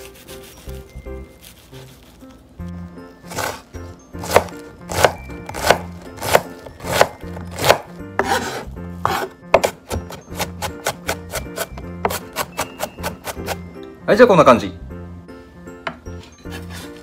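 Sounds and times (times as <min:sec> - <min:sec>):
knife chopping on cutting board: 0:03.3 - 0:03.6, 0:04.2 - 0:13.6.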